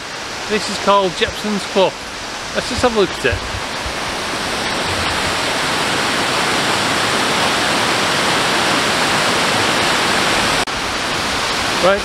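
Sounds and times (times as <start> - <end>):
waterfall tumbling over rocks: 0.0 - 12.0.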